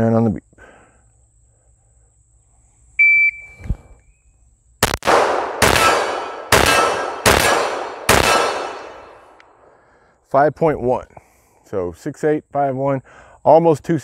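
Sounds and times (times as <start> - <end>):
shot timer beep: 3.0 - 3.6
pistol shots: 4.8 - 9.4.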